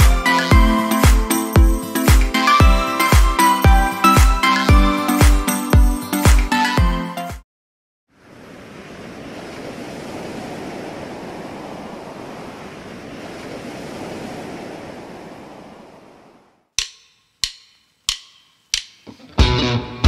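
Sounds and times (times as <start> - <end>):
water rushing: 0.0 - 4.4, 8.1 - 16.6
plucked string notes: 16.8 - 20.0.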